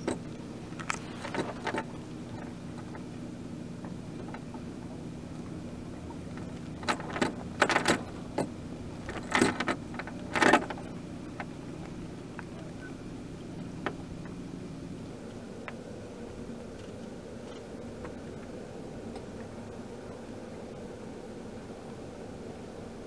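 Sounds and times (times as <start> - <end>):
metallic clinking and rattling: 0.0 - 3.0, 5.9 - 11.0.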